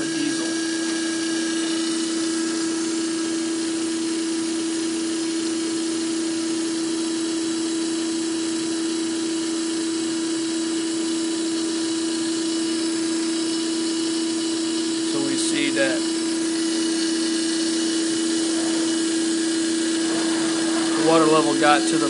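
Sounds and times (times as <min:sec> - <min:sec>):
pump motor humming: 0:00.0 - 0:06.8, 0:11.3 - 0:22.0.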